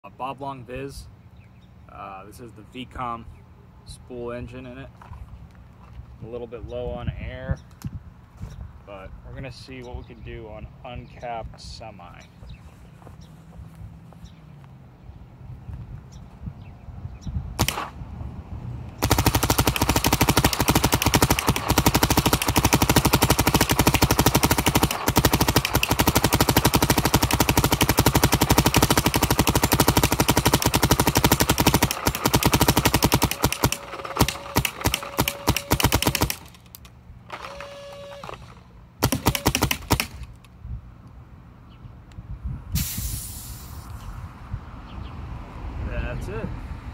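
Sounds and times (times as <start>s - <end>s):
paintball marker rapid shots: 17.6s - 18.0s, 19.0s - 36.6s, 39.0s - 40.4s.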